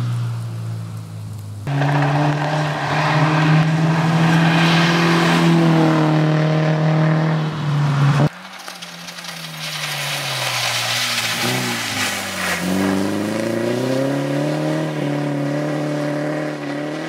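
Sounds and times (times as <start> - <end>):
rally car engine at high revs: 1.6 - 8.3, 11.2 - 17.0.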